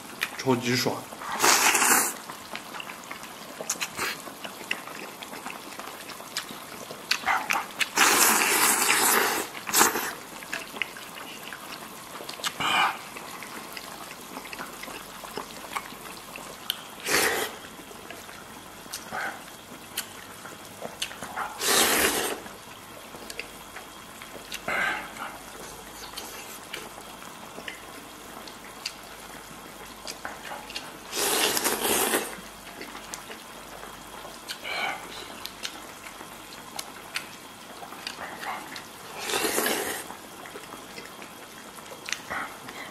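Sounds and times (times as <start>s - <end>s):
loud slurping: 1.2s - 2.3s, 7.1s - 10.2s, 17.0s - 17.6s, 21.2s - 22.5s, 31.1s - 32.4s, 39.1s - 40.2s
quiet chewing: 1.2s - 42.9s.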